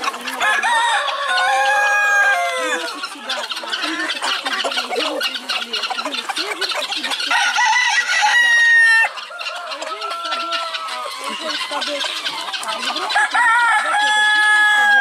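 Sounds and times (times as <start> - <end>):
chickens clucking and squawking: 0.0 - 15.0
rooster crowing: 0.4 - 2.9, 7.3 - 12.2, 13.0 - 15.0.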